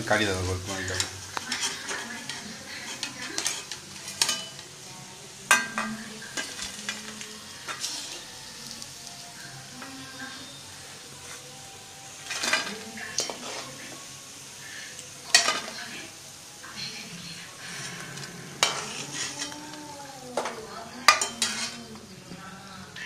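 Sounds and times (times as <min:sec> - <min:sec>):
food sizzling in hot oil: 0:00.0 - 0:23.0
ladle clinking and scraping pan: 0:00.8 - 0:04.6, 0:05.5 - 0:07.0, 0:07.6 - 0:08.3, 0:12.2 - 0:13.8, 0:15.3 - 0:15.8, 0:17.8 - 0:19.6, 0:20.4 - 0:21.8.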